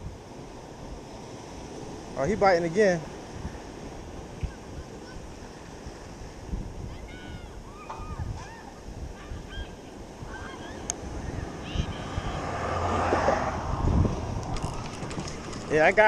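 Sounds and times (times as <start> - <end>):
surf: 0.0 - 16.0
wind: 0.0 - 16.0
rush of noise: 10.2 - 16.0.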